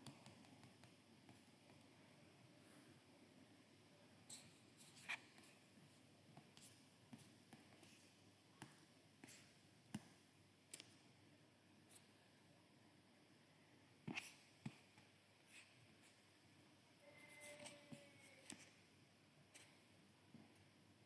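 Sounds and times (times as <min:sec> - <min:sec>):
faint clicks and taps: 0:00.0 - 0:02.0, 0:06.3 - 0:11.0, 0:17.5 - 0:18.8.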